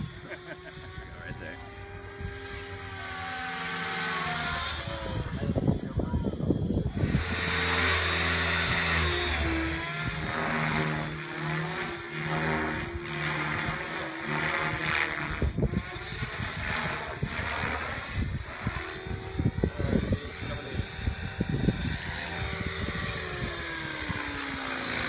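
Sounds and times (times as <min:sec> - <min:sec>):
model helicopter rotor whine: 0:00.0 - 0:25.0.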